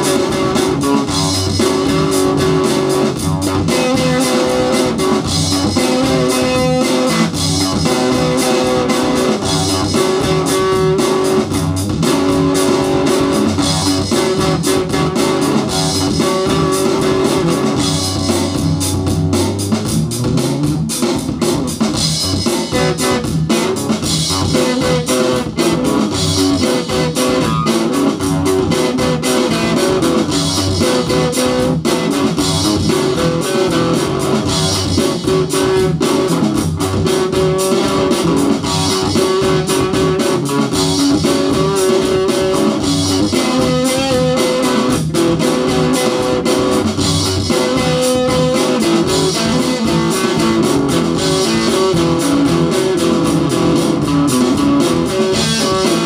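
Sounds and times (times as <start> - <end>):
bass line: 0.0 - 56.0
electric guitar: 0.0 - 56.0
rock beat: 0.0 - 56.0.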